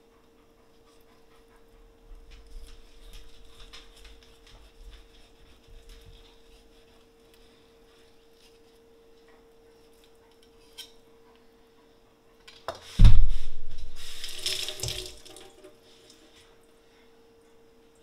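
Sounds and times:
loud thump: 0:13.0 - 0:14.0
water running into metal sink: 0:13.8 - 0:15.7.

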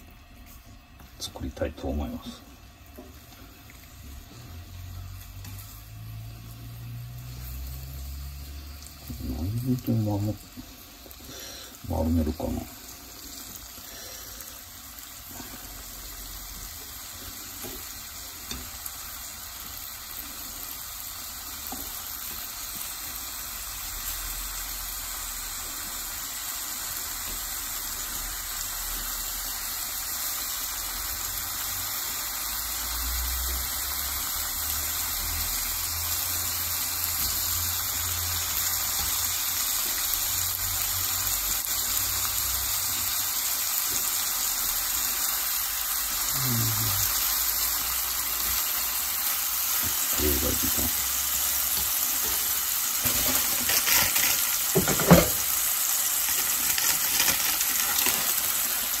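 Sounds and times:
meat sizzling in a frying pan: 0:00.0 - 0:59.0.

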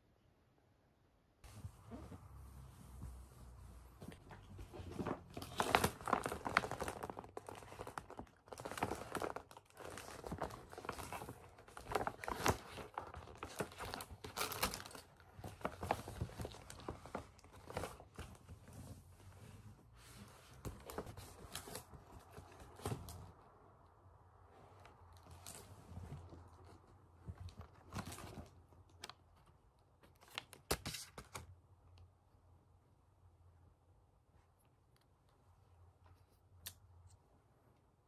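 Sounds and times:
gift wrapping rustling: 0:01.5 - 0:23.4.

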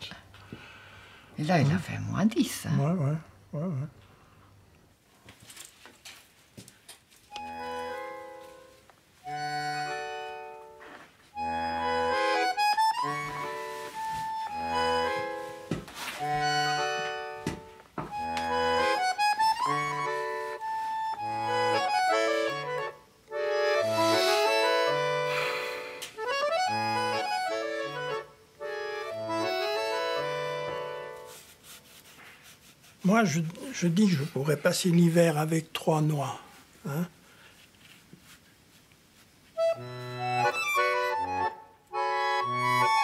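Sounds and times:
instrumental background music: 0:07.3 - 0:32.1, 0:39.6 - 0:43.0.

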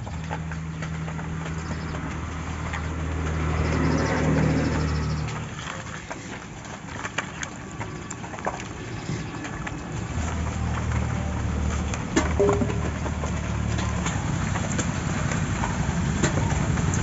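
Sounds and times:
engine running: 0:00.0 - 0:17.0
handling clicks and knocks: 0:05.2 - 0:17.0.

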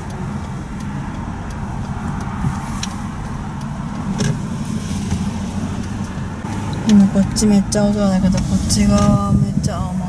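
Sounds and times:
car engine and road hum: 0:00.0 - 0:10.0.

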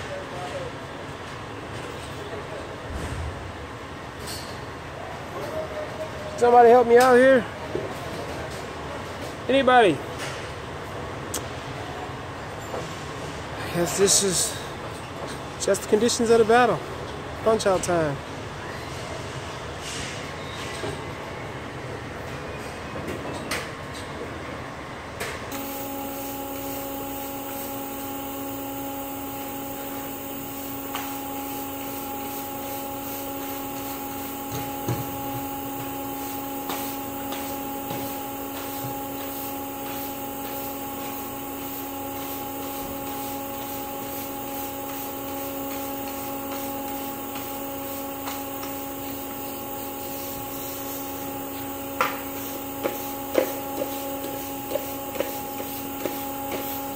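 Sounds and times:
industrial machinery humming: 0:25.5 - 0:56.9.

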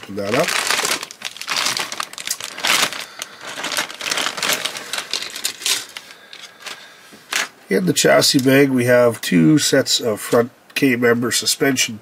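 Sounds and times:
plastic bag crinkling: 0:00.0 - 0:07.6.

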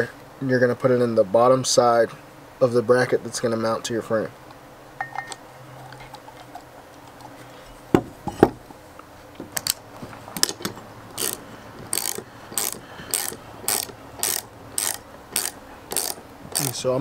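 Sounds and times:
objects knocking on wooden table: 0:07.9 - 0:08.6
hand ratchet clicking: 0:09.6 - 0:09.8, 0:10.4 - 0:16.8.

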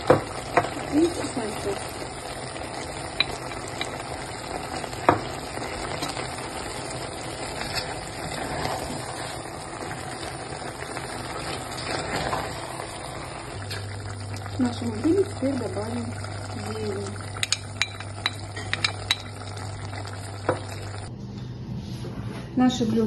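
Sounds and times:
vegetables sizzling in a pan: 0:00.0 - 0:21.1.

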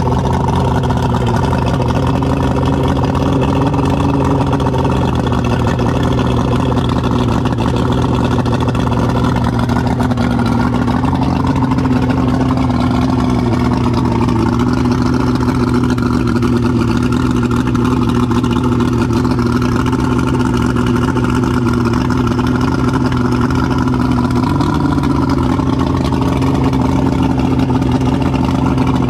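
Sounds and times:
two-stroke engine running: 0:00.0 - 0:29.0.

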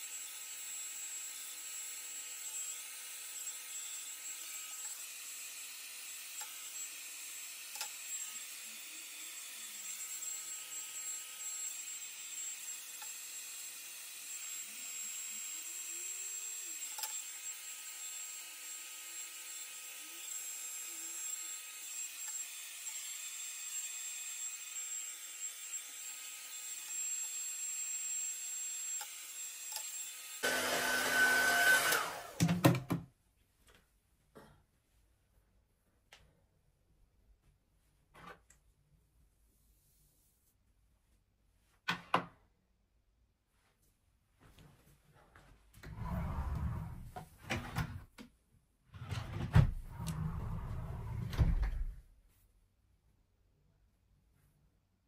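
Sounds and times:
hair dryer running: 0:29.7 - 0:32.6.

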